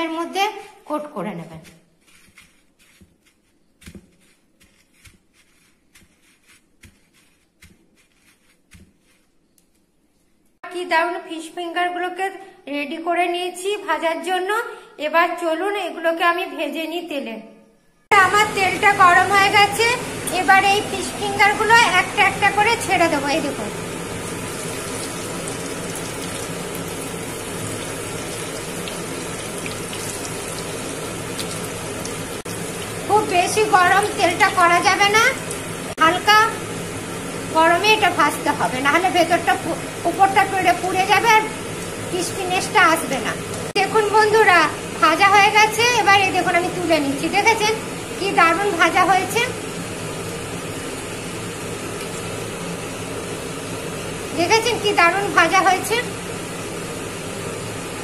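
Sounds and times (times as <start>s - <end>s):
crunching and rustling breadcrumbs: 1.6s - 9.9s
fish fingers sizzling in hot oil: 23.8s - 36.0s.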